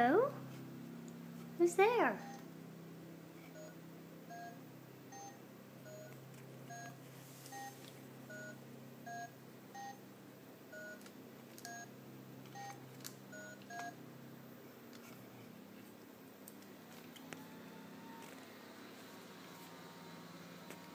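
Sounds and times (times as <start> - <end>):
toy phone keypad beeping: 5.1 - 6.9, 12.5 - 13.9.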